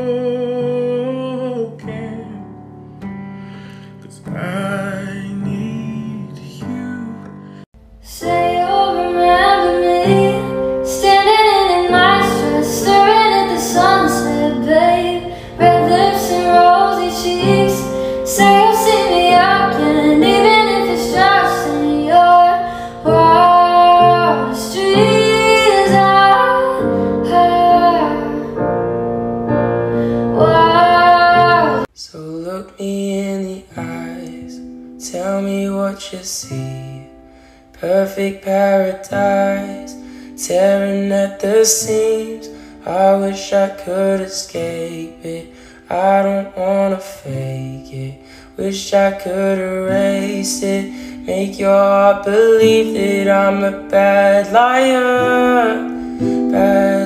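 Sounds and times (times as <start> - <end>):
man singing: 0.0 - 2.5, 3.9 - 7.7, 30.4 - 37.2, 37.8 - 57.0
woman singing: 0.0 - 2.6, 8.0 - 28.8, 29.5 - 37.2, 37.8 - 57.0
piano accompaniment: 0.0 - 31.9, 46.0 - 57.0
acoustic guitar: 0.0 - 57.0.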